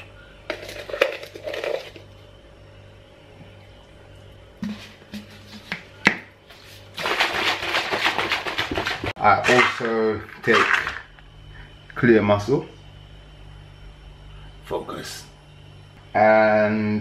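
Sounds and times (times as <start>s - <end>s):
shaker cup shaken hard: 6.8s - 11.0s
powder rattling into plastic cup: 7.0s - 11.1s.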